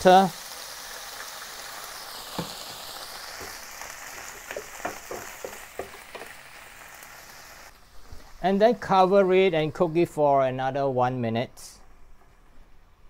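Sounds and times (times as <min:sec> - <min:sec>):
greens sizzling in a pan: 0:00.0 - 0:09.9
water steaming off: 0:00.0 - 0:09.9.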